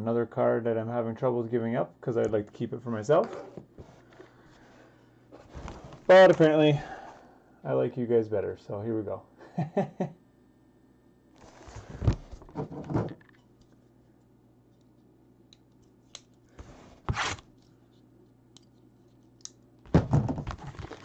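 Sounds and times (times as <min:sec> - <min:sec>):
shrink wrap and cardboard tearing: 0:20.5 - 0:21.0.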